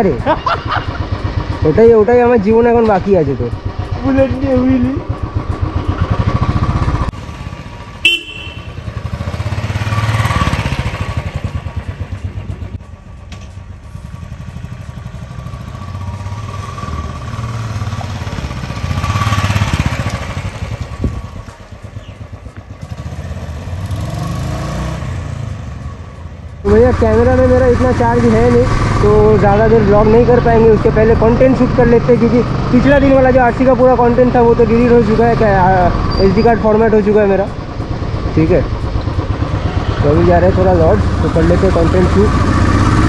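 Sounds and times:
motorcycle engine running: 0.0 - 43.0
horn toot: 8.0 - 8.9.

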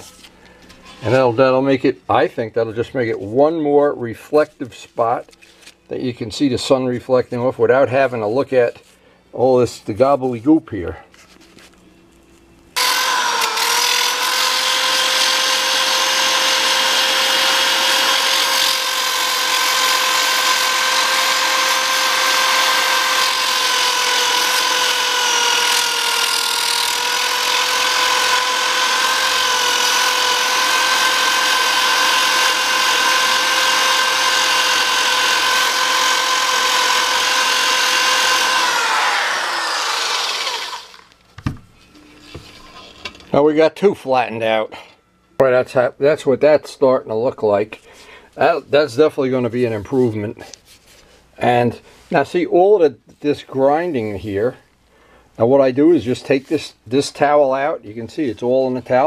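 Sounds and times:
handheld grinder whining: 12.8 - 41.2.

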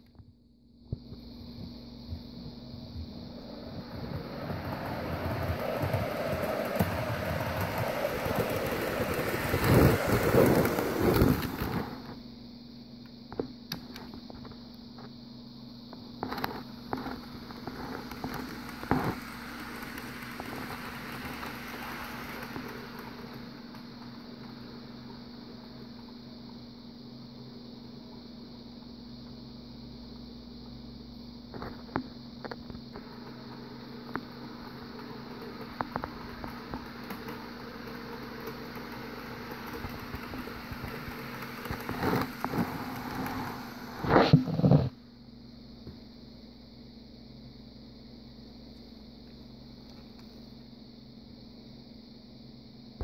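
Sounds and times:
steady hum: 0.0 - 53.0
model train wheels rattling on rail: 3.4 - 12.0, 17.4 - 23.5, 34.8 - 44.0.

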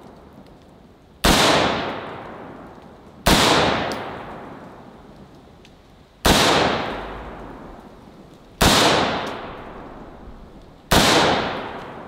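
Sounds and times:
rifle shots echoing: 1.2 - 2.4, 3.2 - 4.7, 6.2 - 12.0.

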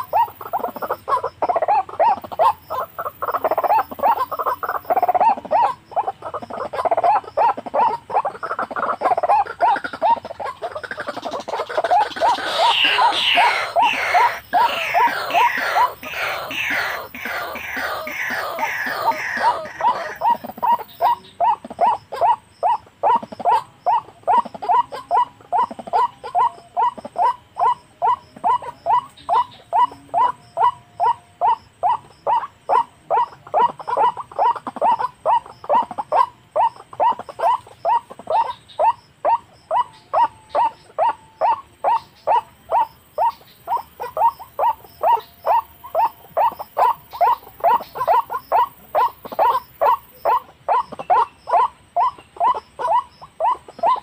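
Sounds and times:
waterhen call repeated: 6.8 - 23.0.

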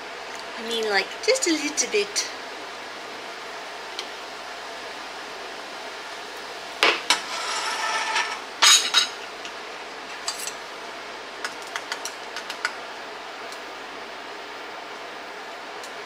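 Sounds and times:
scraping with faint ringing: 7.2 - 8.8.

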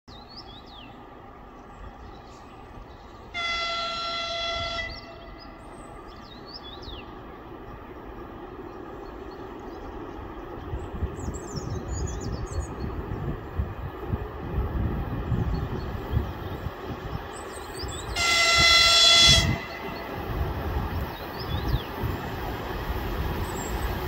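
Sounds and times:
train rumbling: 0.1 - 24.0
train horn blast: 3.3 - 5.4, 18.1 - 20.2.

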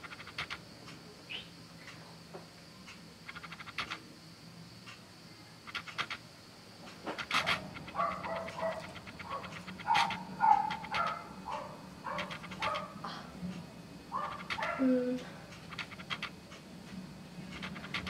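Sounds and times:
high-pitched whimpering cries: 14.6 - 15.3.

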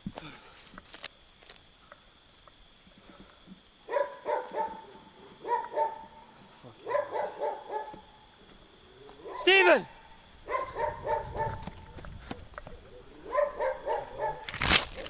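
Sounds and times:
dog barking: 3.8 - 8.3, 9.0 - 15.0.

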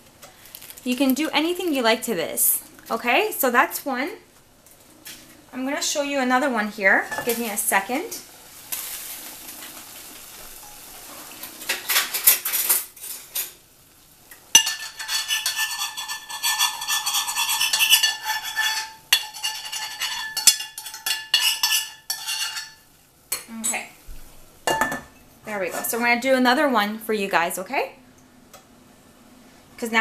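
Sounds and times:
metal cookware clattering: 7.0 - 7.6, 10.6 - 13.6, 14.5 - 23.5, 24.6 - 26.0
metallic rattling and scraping: 14.6 - 22.8.

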